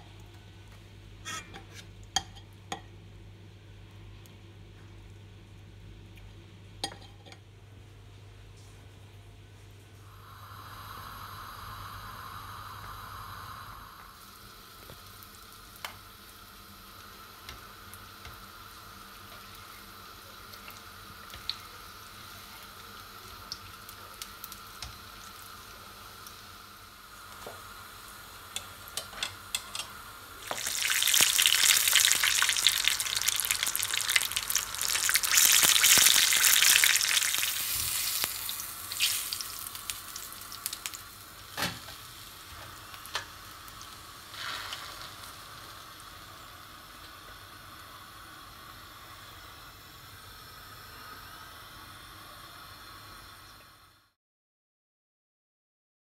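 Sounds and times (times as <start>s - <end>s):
food deep-frying in oil: 14.1s - 54.0s.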